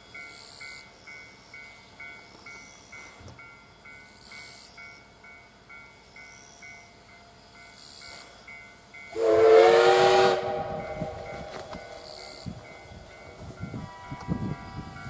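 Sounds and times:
steam whistle blast: 9.1s - 12.4s.

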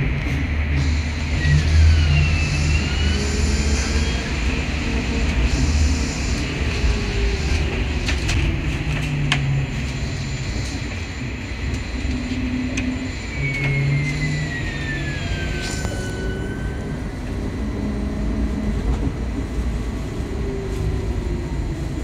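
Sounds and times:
bus cabin low rumble: 14.9s - 22.0s.

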